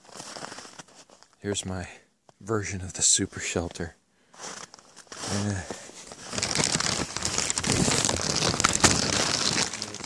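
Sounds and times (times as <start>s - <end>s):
plastic sheeting crinkling: 0.0s - 1.4s, 4.4s - 10.0s.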